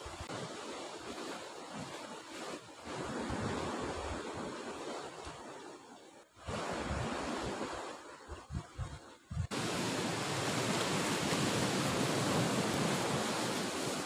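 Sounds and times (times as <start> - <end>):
wind buffeting microphone: 6.4 - 14.0
sea surf breaking on rocks: 9.4 - 14.0.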